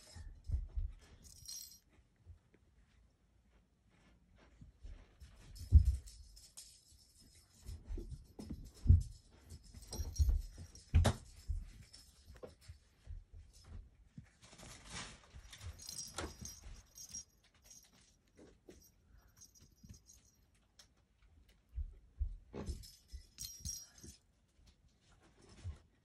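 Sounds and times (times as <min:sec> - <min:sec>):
soft rustling: 0:00.0 - 0:26.0
cat toy ball jingling and rattling: 0:01.0 - 0:01.9, 0:05.2 - 0:20.6, 0:22.5 - 0:24.2.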